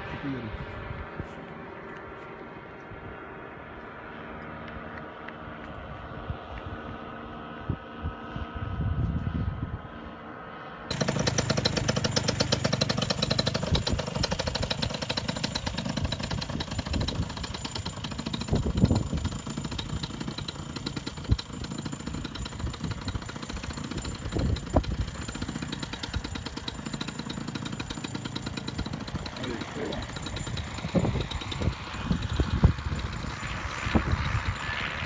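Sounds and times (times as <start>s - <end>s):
faint steady engine hum: 0.0s - 35.0s
engine idling with rapid pulse: 10.9s - 35.0s.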